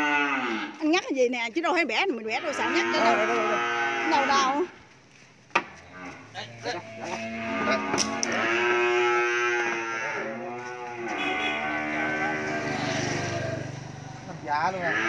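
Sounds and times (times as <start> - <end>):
cow bawling: 0.0 - 0.8, 2.3 - 4.7, 5.9 - 13.8, 14.7 - 15.0.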